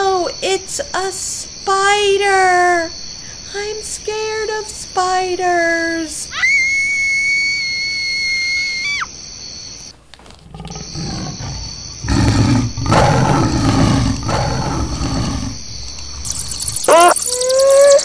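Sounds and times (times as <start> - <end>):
animal roaring: 10.4 - 16.3
high whistling tone dropping: 15.2 - 18.0.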